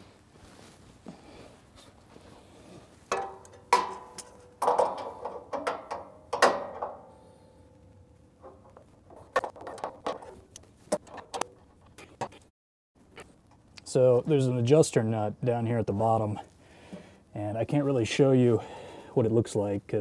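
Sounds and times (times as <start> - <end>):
metal clanks with ringing tone: 3.1 - 8.8.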